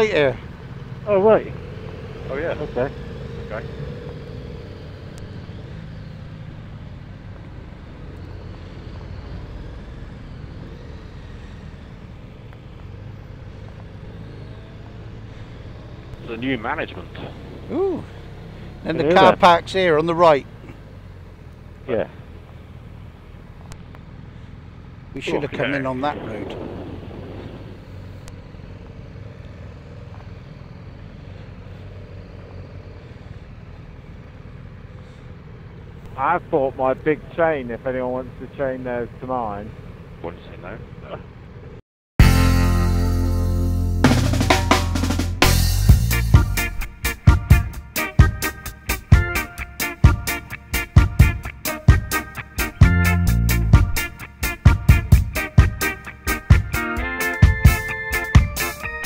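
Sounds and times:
motorcycle engine running: 0.0s - 59.0s
road and wind noise: 0.0s - 59.0s.

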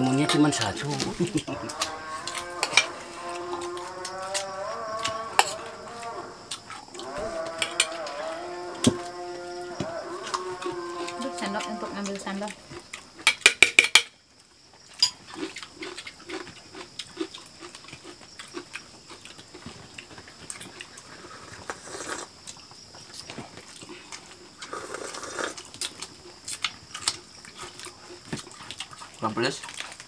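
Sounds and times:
clicks and taps of spoons and dishes: 7.6s - 8.1s, 13.2s - 14.1s
chewing and lip-smacking: 14.8s - 21.8s, 25.5s - 30.0s.

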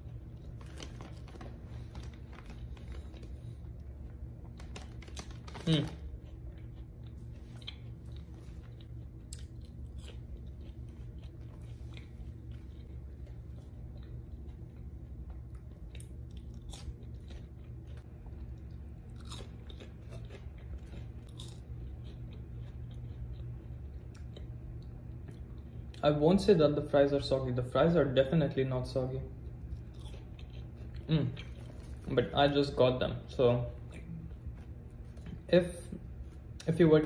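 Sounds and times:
chewing crunchy fries: 0.0s - 37.0s
steady low hum: 0.0s - 37.0s.

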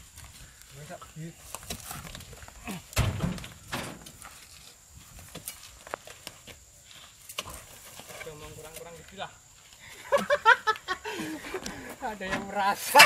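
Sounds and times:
heavy thud: 2.9s - 4.2s.

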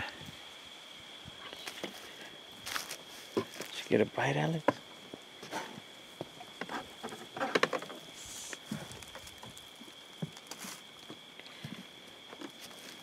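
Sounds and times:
faint high whine: 0.0s - 13.0s
footsteps crunching on dry reeds: 1.5s - 4.0s, 8.0s - 13.0s.

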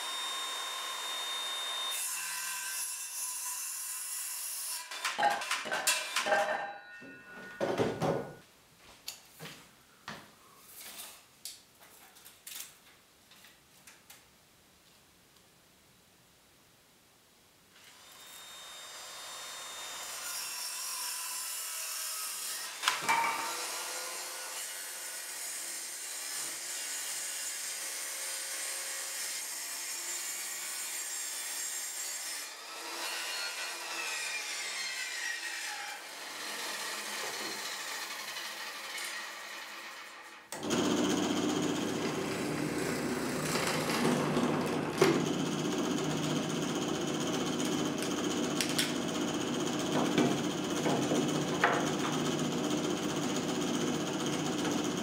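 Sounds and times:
high-pitched power tool cutting: 0.0s - 3.5s
deeper power tool running: 40.6s - 55.0s.

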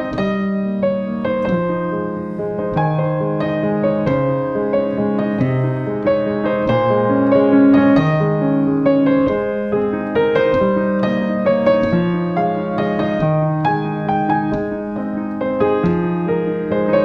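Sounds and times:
slow piano music: 0.0s - 17.0s.

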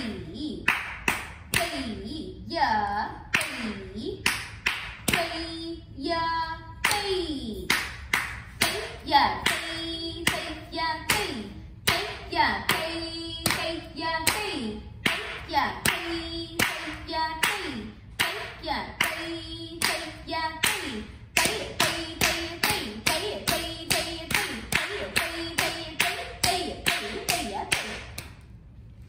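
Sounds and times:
person chanting: 8.6s - 28.0s.

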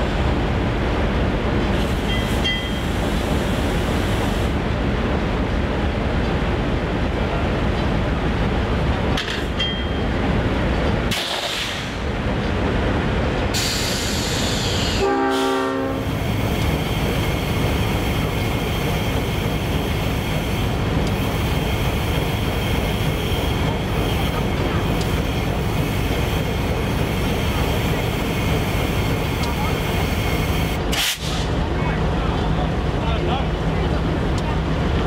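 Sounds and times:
diesel locomotive idling: 0.0s - 35.0s
train horn blast: 14.9s - 16.1s.

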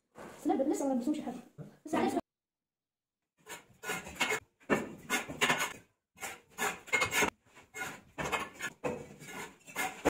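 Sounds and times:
trowel scraping mortar on bricks: 3.4s - 10.0s.

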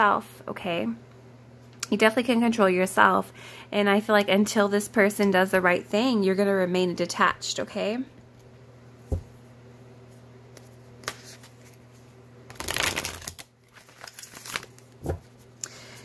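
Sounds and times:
cards riffling: 12.5s - 15.1s.

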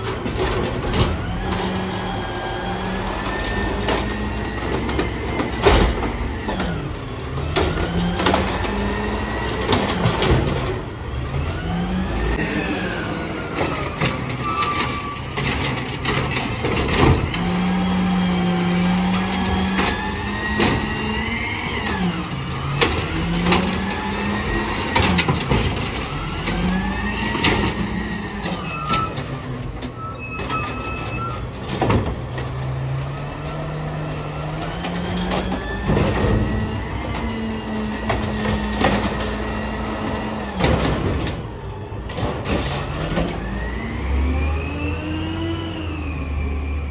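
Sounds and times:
clunks of carts and arm: 3.3s - 6.8s, 13.5s - 17.6s, 24.7s - 32.8s, 38.0s - 43.5s.

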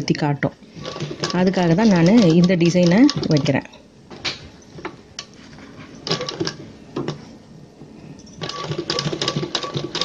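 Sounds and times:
sewing machine stitching: 0.7s - 3.6s, 6.0s - 7.2s, 8.4s - 10.0s.

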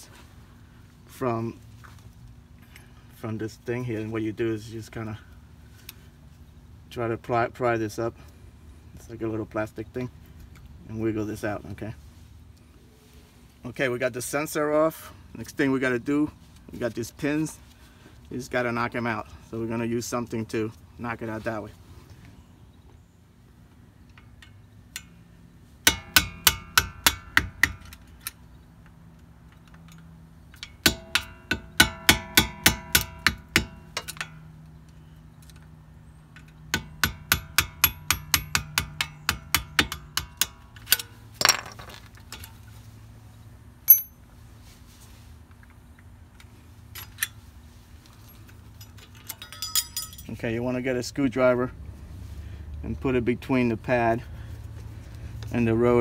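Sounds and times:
hammer tapping metal: 25.8s - 27.8s, 30.6s - 34.4s, 36.7s - 41.6s, 43.9s - 44.2s.

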